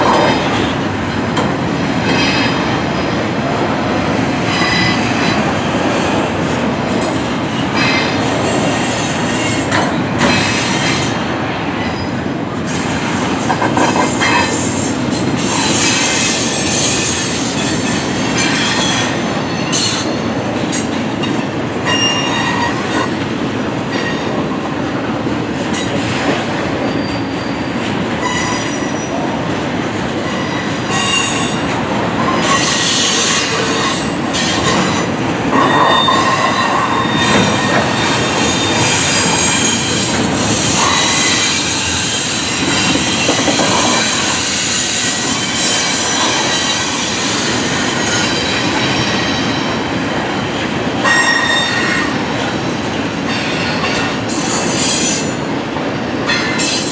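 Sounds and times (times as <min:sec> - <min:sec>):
train wheels on rail: 0:00.0 - 0:56.9.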